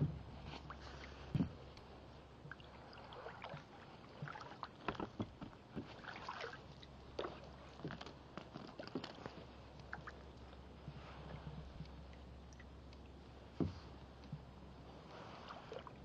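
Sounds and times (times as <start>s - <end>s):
paddle splashes and drips: 0.5s - 10.2s, 15.1s - 16.0s.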